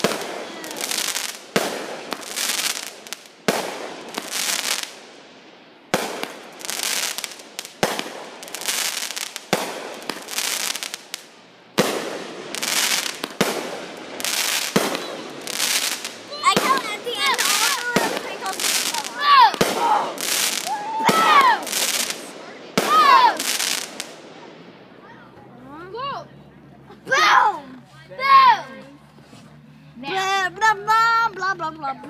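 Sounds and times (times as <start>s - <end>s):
fizzing of burning firework stars: 0.0s - 5.1s, 5.9s - 24.2s
firework reports: 0.0s - 25.3s.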